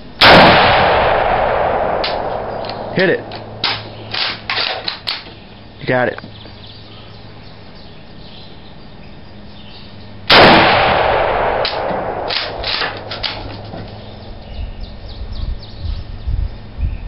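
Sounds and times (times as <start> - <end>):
gunshot echo: 0.2 - 4.8, 10.3 - 14.3
rifle shot: 0.2 - 5.2, 10.3 - 14.3.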